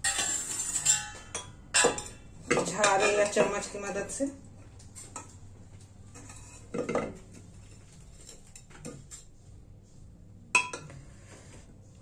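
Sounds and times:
metal spoon scraping a pot: 0:00.0 - 0:03.8, 0:06.1 - 0:09.4.

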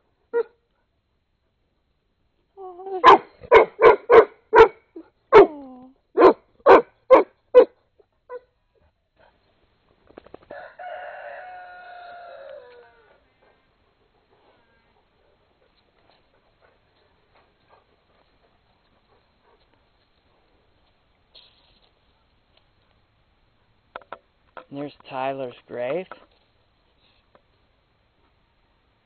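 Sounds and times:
dog barking: 0:03.0 - 0:05.5, 0:06.2 - 0:08.4
rooster crowing: 0:10.5 - 0:13.1.

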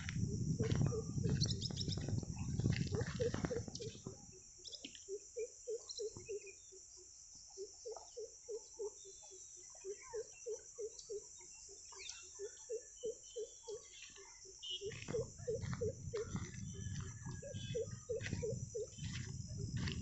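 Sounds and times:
high insect chirring: 0:00.0 - 0:06.7, 0:14.5 - 0:20.0.

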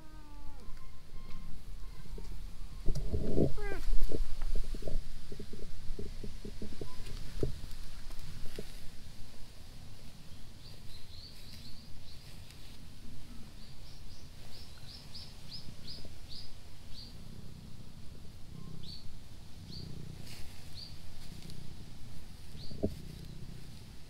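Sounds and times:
small bird chirping: 0:18.5 - 0:20.1, 0:20.7 - 0:21.0, 0:22.5 - 0:23.5.

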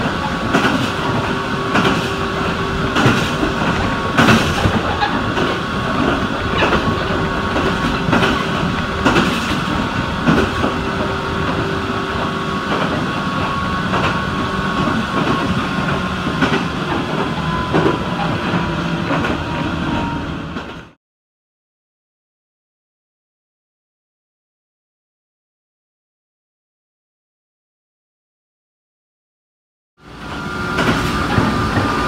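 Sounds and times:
train running rumble: 0:00.0 - 0:21.0, 0:30.0 - 0:32.0
wheels clacking over rail joints: 0:00.0 - 0:21.0, 0:30.1 - 0:32.0.

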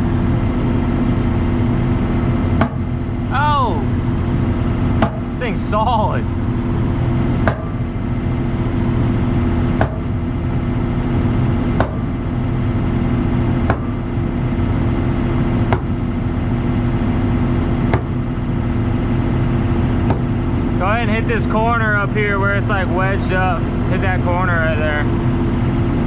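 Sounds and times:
skid steer engine running: 0:00.0 - 0:26.0
sledgehammer striking concrete: 0:02.6 - 0:03.0, 0:05.0 - 0:05.4, 0:07.4 - 0:07.9, 0:09.8 - 0:10.2, 0:11.8 - 0:12.2, 0:13.6 - 0:14.0, 0:15.7 - 0:16.0, 0:17.9 - 0:18.2.

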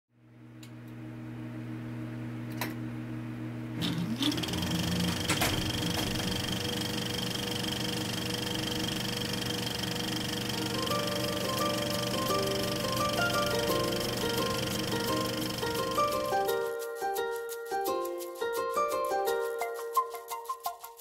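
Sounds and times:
mechanical whirring and hum: 0:00.2 - 0:16.3
short rising whine: 0:03.8 - 0:16.4.

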